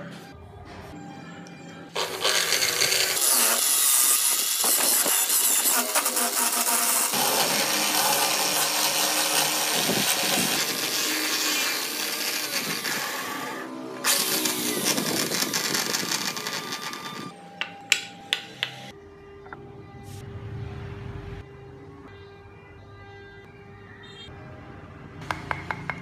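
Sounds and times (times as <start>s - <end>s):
electric drill spinning: 2.0s - 17.4s
hand tool scraping turning wood: 4.6s - 17.2s.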